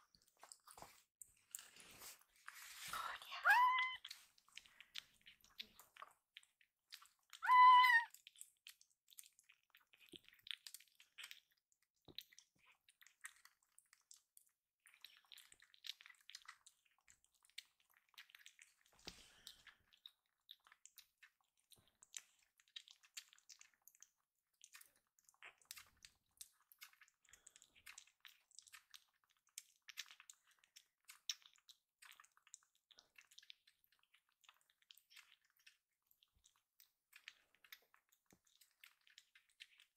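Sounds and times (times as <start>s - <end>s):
kitten meowing: 3.4s - 4.0s, 7.4s - 8.1s
kitten suckling wet clicks: 3.5s - 39.9s.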